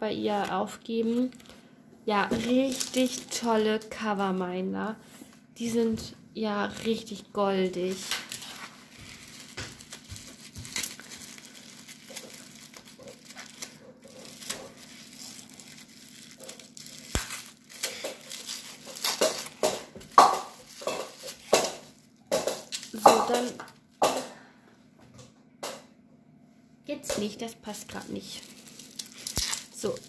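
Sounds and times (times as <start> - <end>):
tissue paper crinkling: 2.4 - 3.5, 7.8 - 22.0, 27.7 - 30.0.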